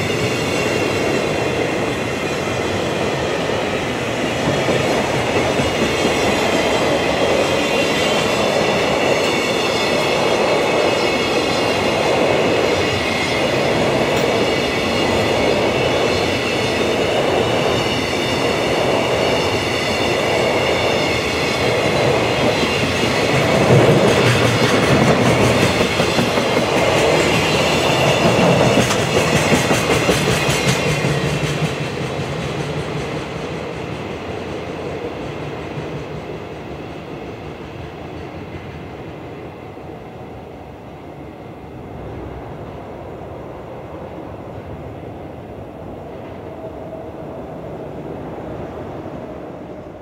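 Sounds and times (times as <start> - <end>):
train rumble: 0.0 - 50.0.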